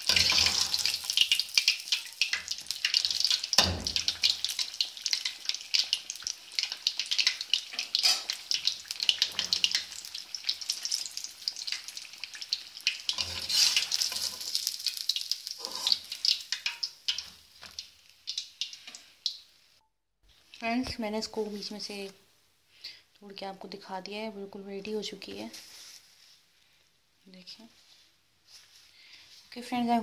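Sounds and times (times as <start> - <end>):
fish sizzling in hot oil: 0.0 - 19.8.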